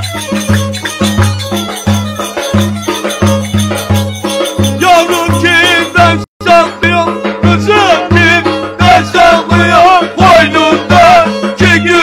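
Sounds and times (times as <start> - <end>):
violin bowed: 0.0 - 6.2
strummed lute: 0.0 - 12.0
man singing with vibrato: 4.6 - 12.0.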